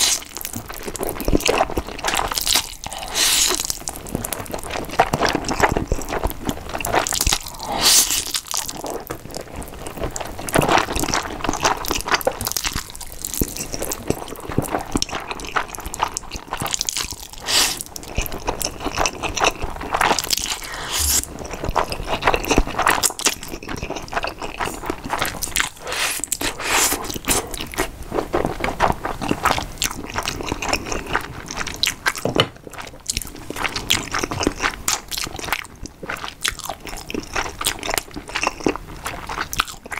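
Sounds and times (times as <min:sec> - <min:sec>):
chewing: 0:00.0 - 0:39.9
slurping noodles: 0:02.9 - 0:03.7, 0:07.4 - 0:08.3, 0:17.4 - 0:17.9, 0:19.5 - 0:23.3, 0:24.6 - 0:27.9.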